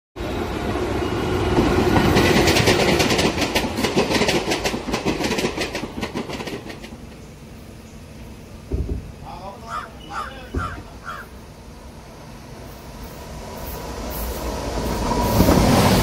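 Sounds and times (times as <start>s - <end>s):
train rumble: 0.2s - 16.0s
train wheels clicking over rail joints: 1.5s - 7.4s.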